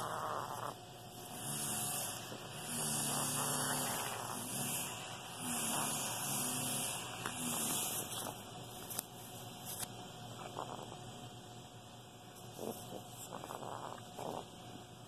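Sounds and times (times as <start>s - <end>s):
parrot raspy buzzing bursts: 0.0s - 7.9s.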